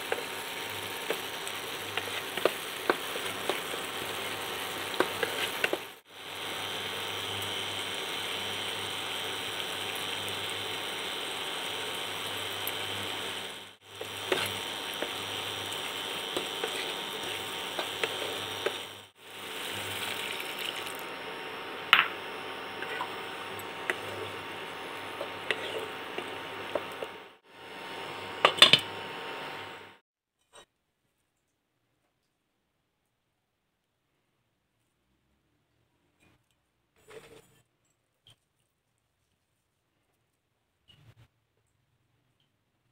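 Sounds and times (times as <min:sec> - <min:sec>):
wooden spoon stirring and scraping: 0:00.0 - 0:06.9, 0:08.3 - 0:20.9, 0:22.2 - 0:27.4, 0:36.1 - 0:41.3
lentils sizzling in a pan: 0:00.0 - 0:30.0.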